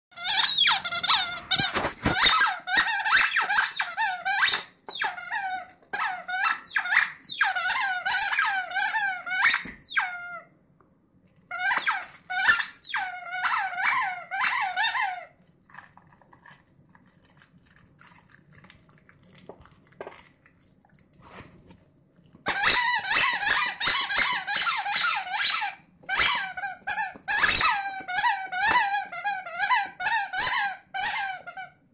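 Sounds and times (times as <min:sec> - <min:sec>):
dog toy squeaking: 0:00.1 - 0:10.5, 0:11.5 - 0:15.3, 0:22.5 - 0:31.8.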